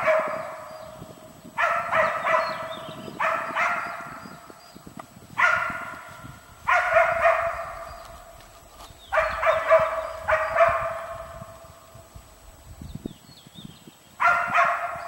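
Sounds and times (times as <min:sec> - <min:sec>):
dog barking: 0:00.0 - 0:00.8, 0:01.6 - 0:04.2, 0:05.4 - 0:08.1, 0:09.1 - 0:11.6, 0:14.2 - 0:15.0.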